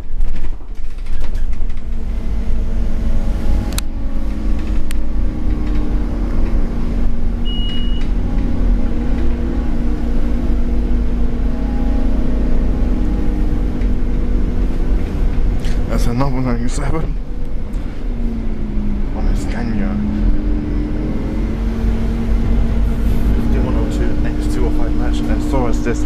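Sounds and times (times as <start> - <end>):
bus body rattles: 0.0 - 18.4
bus diesel engine droning: 0.0 - 26.0
short high beep: 7.4 - 8.0.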